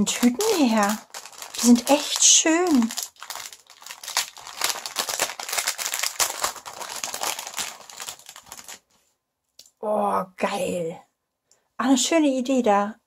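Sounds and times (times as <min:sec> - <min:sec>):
plastic bag crinkling: 0:00.0 - 0:09.0.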